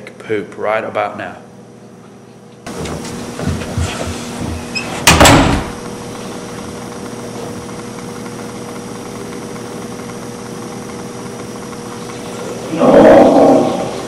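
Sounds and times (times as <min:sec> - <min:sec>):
steady hum: 0:00.0 - 0:14.0
door banging shut: 0:04.7 - 0:05.8.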